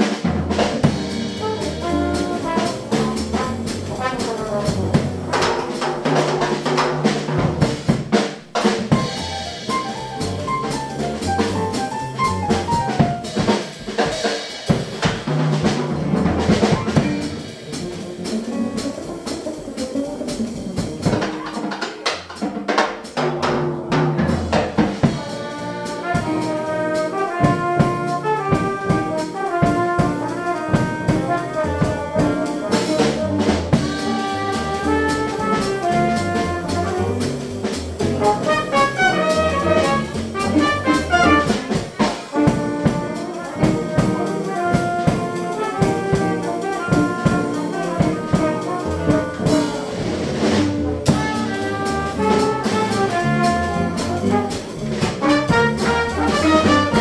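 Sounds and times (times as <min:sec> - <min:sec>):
bass: 0:00.0 - 0:57.0
drum kit keeping time: 0:00.0 - 0:57.0
piano: 0:00.0 - 0:57.0
trumpet melody: 0:00.8 - 0:06.0, 0:25.0 - 0:57.0.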